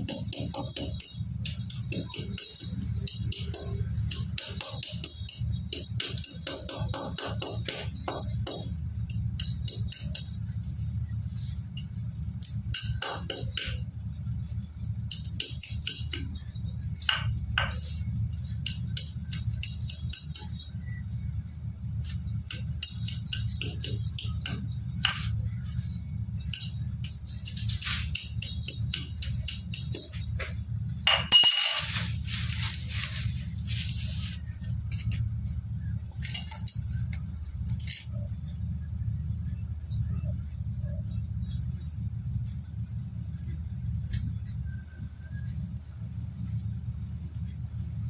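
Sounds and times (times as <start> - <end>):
plastic bag crinkling: 31.8 - 34.4.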